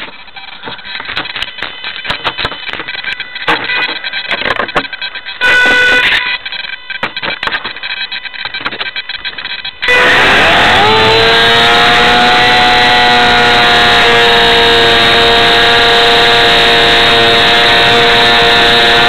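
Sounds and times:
clicking and knocking handling noise: 0.0 - 9.6
faint electronic whine: 0.0 - 10.8
loud beep: 5.0 - 6.5, 9.6 - 11.2.

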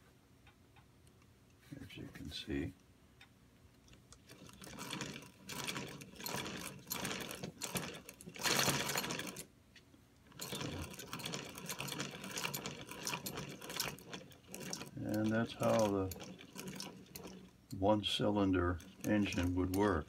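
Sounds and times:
small metal parts clattering: 4.2 - 9.5, 10.3 - 20.0.

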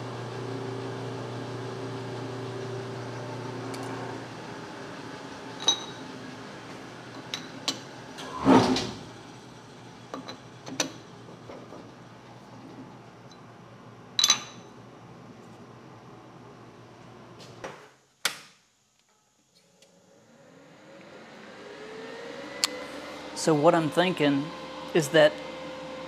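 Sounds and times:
low machine hum: 0.0 - 17.4, 19.9 - 26.0
metal clunk and scrape: 7.2 - 9.0.

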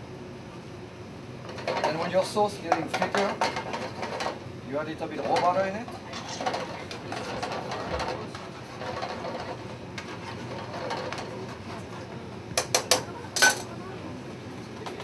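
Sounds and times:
metal tongs scraping a pan: 5.1 - 12.0.

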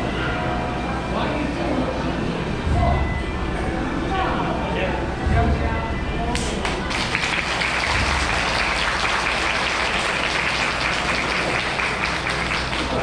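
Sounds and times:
firecrackers crackling: 6.9 - 13.0.

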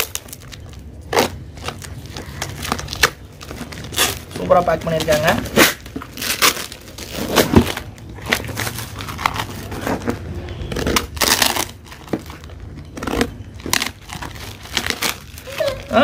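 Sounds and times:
parcel wrapping crackling and rustling: 0.0 - 16.0.

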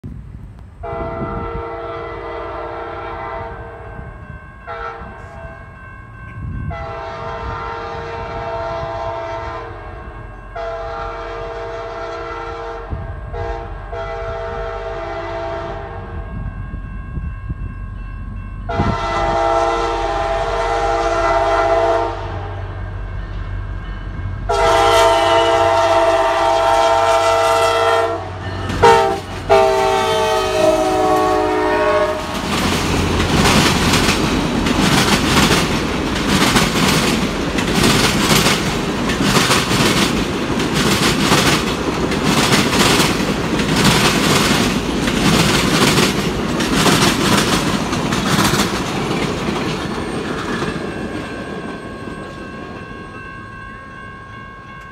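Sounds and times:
train rumbling: 0.0 - 54.9
train air horn blasts: 0.8 - 5.7, 6.7 - 16.3, 18.7 - 22.8, 24.4 - 32.7.

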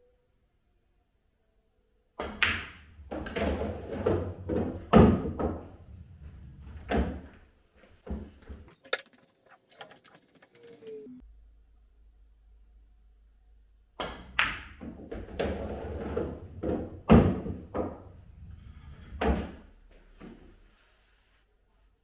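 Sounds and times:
pool balls knocking: 2.2 - 7.4, 14.0 - 19.6
balls rolling rumble: 2.7 - 8.7, 14.1 - 20.5.

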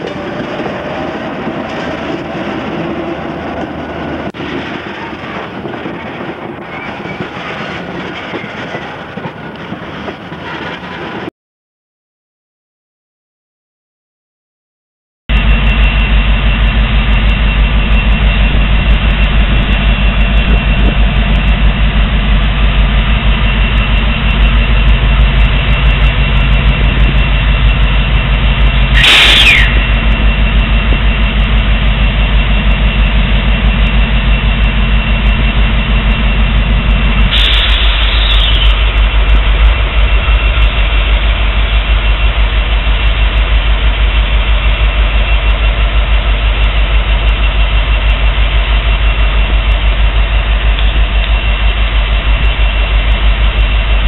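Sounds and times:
diesel locomotive idling: 0.0 - 11.3, 15.3 - 54.0
sharp noise with falling whine: 23.6 - 41.0.

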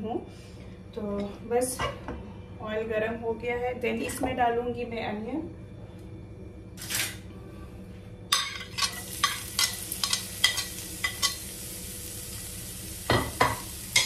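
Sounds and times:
onion sizzling in hot oil: 8.7 - 14.0.

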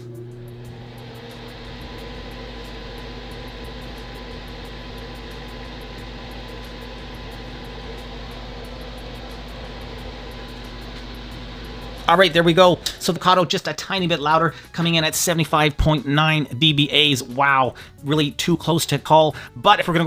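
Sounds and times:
faint steady hum: 0.0 - 13.4
extractor fan whirring: 0.0 - 15.8.

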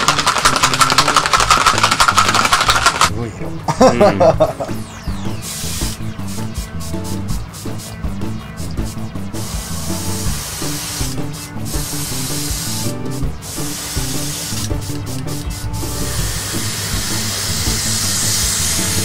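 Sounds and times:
airbrush hissing: 5.4 - 19.0.

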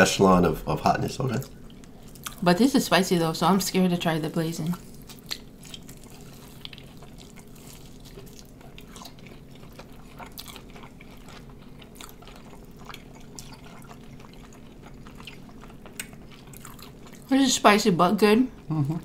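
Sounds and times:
steady low hum: 0.0 - 19.0
wet chewing mouth clicks: 5.0 - 17.3.

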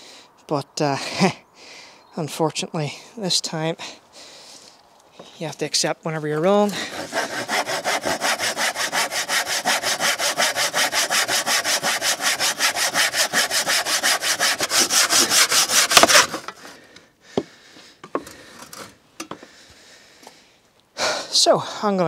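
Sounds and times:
hand saw cutting wood: 6.3 - 16.8, 18.2 - 19.0.

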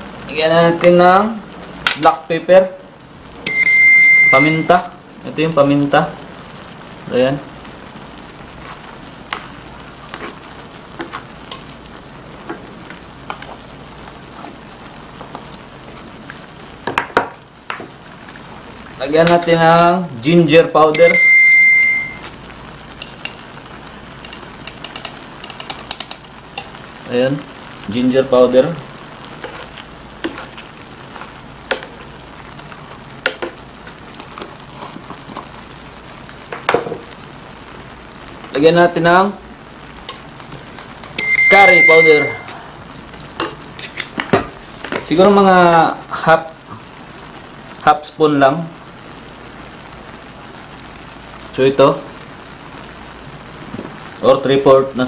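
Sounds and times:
shrimp sizzling in frying pan: 0.0 - 55.0
pops and crackles: 1.8 - 2.1, 8.6 - 11.8, 12.4 - 19.5, 29.0 - 37.2, 39.9 - 41.2, 43.1 - 45.9
spoon stirring pan: 8.6 - 11.7, 24.2 - 26.8, 29.2 - 35.6
metal spoon clinking on pan: 23.0 - 23.5, 24.2 - 26.7, 43.4 - 43.7.

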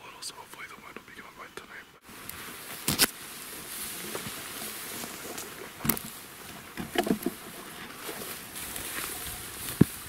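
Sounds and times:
footsteps through tall grass: 2.1 - 10.0.

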